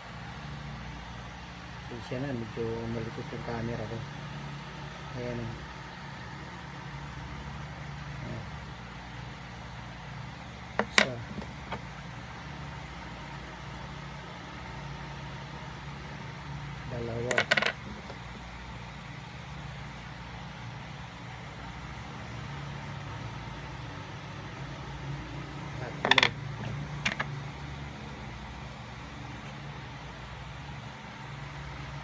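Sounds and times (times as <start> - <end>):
coins clinking on wooden table: 17.3 - 18.2, 26.0 - 26.4, 27.0 - 27.3.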